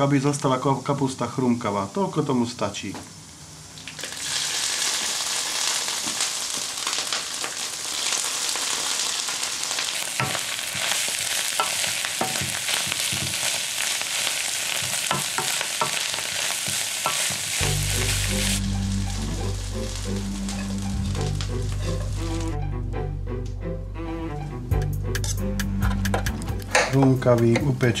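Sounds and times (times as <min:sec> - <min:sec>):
sauerkraut sizzling in a pan: 0:03.2 - 0:22.6
wooden spoon scraping a pan: 0:20.4 - 0:22.5.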